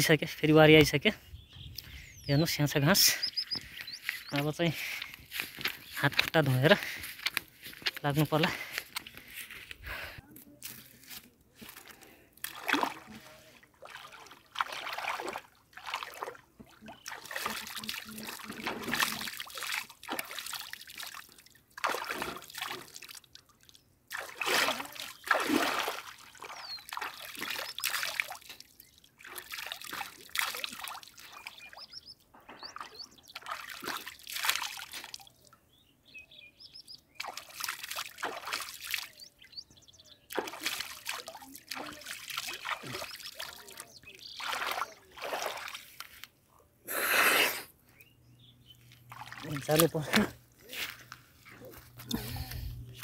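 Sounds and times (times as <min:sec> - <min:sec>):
bird calls: 0:00.7 - 0:09.4, 0:26.4 - 0:28.2, 0:30.5 - 0:34.1, 0:35.1 - 0:37.7, 0:38.8 - 0:40.6, 0:41.9 - 0:45.8
river water splashing: 0:11.6 - 0:32.0, 0:32.6 - 0:35.4, 0:37.1 - 0:39.2, 0:40.3 - 0:46.3, 0:48.9 - 0:52.6.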